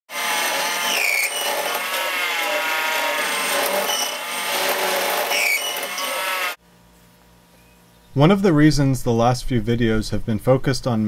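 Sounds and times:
lathe cutting metal: 0:00.1 - 0:06.6
timing belt squealing: 0:00.8 - 0:06.6.

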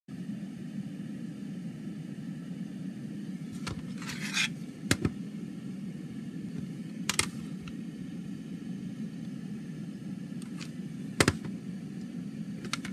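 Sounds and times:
steady low hum: 0:00.1 - 0:12.9
plastic case scraping on table: 0:03.7 - 0:04.6.

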